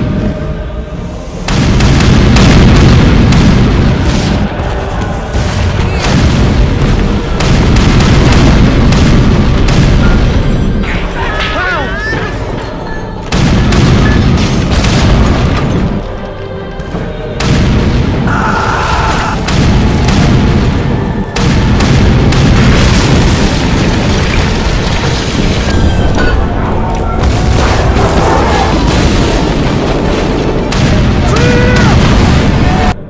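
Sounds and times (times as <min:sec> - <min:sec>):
battle soundtrack music: 0:00.0 - 0:33.0
explosions: 0:01.3 - 0:12.6, 0:13.3 - 0:16.2, 0:17.4 - 0:33.0
cannon booms: 0:01.5 - 0:04.6, 0:05.4 - 0:10.6, 0:27.2 - 0:33.0.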